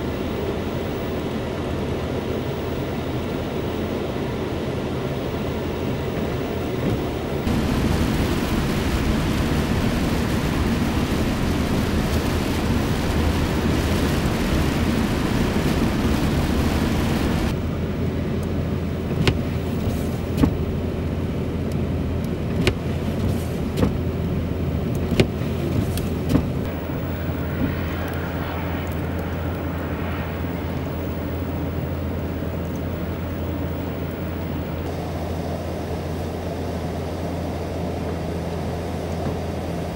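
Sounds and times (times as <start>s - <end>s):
low engine rumble: 0.0s - 39.9s
tyre hiss on wet road: 7.5s - 17.5s, 19.2s - 20.5s, 22.9s - 23.8s, 25.4s - 32.4s.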